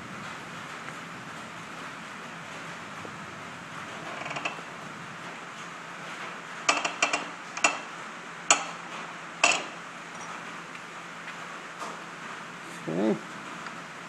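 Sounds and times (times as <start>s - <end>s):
sharp metallic clicks: 6.7s - 7.9s, 8.5s - 8.8s.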